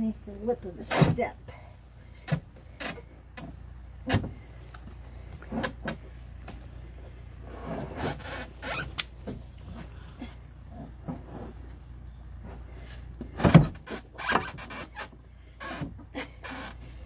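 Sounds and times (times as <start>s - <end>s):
steady low hum: 0.0s - 17.0s
scraping and rubbing: 7.4s - 10.1s.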